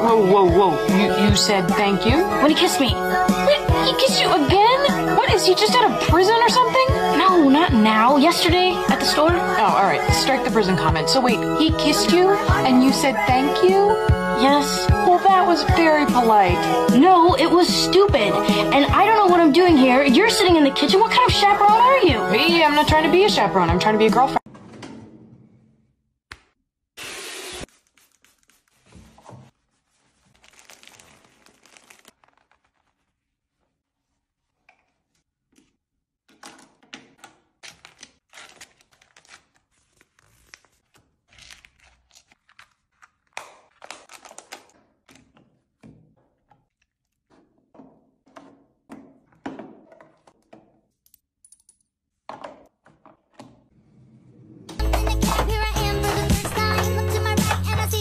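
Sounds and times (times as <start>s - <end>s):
plastic packaging rustling: 27.7s - 34.5s, 37.6s - 45.6s.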